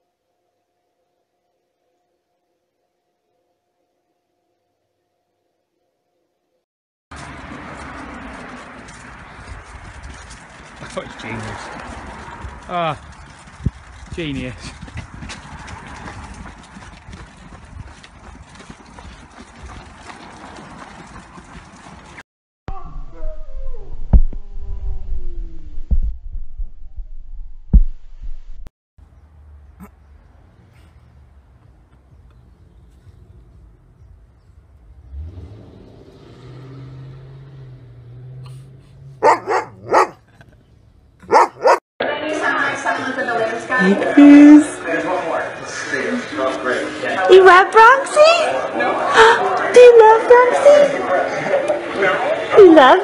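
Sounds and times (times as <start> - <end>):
pushchair wheels clattering on bricks: 8.4 - 22.2
dog barking: 39.2 - 40.4, 41.2 - 41.8.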